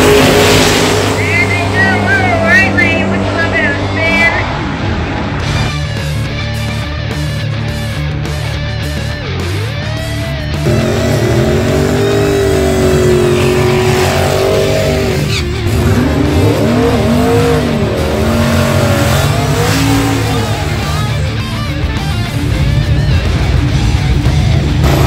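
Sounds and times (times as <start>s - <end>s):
tires spinning: 0.0s - 5.7s, 10.5s - 21.5s
car engine revving: 0.0s - 25.0s.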